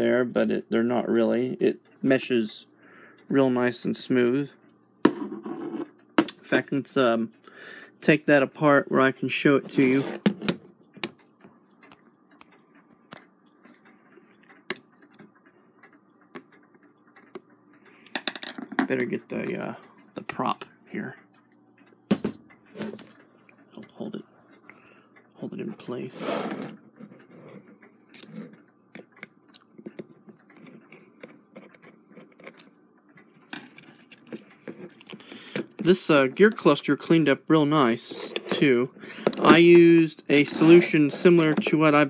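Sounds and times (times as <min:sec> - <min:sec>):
metallic clicks and scrapes: 0:25.6 - 0:36.9.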